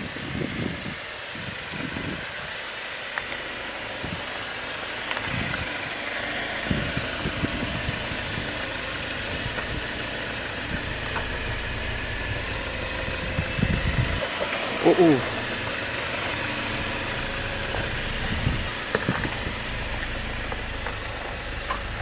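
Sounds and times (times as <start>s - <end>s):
off-road vehicle engine rumble: 0.0s - 22.0s
low thumps: 17.2s - 22.0s.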